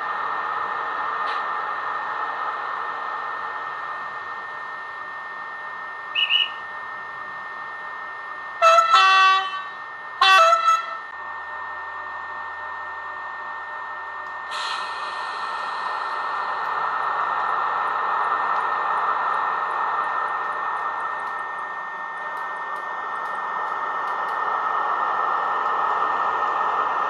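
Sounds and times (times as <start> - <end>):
locomotive horn blasts: 8.6 - 11.1
locomotive ventilation hiss: 14.4 - 20.8
loud hiss: 14.5 - 16.6.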